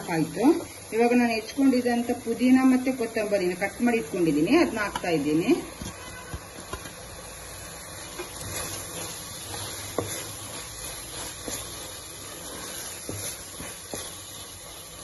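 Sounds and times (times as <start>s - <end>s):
masala sizzling in a pot: 0.0s - 15.0s
wooden spoon stirring: 4.8s - 15.0s
spoon knocking against pot: 5.7s - 7.0s.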